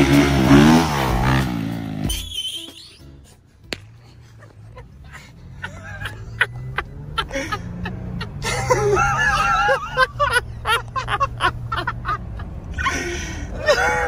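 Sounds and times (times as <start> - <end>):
music: 1.9 - 4.2
car cabin driving hum: 4.4 - 12.8.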